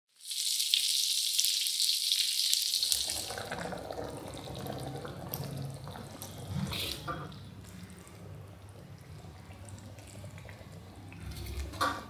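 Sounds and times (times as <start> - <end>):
hot oil sizzling in a pan: 0.1 - 3.3
liquid pouring into simmering curry: 0.2 - 12.0.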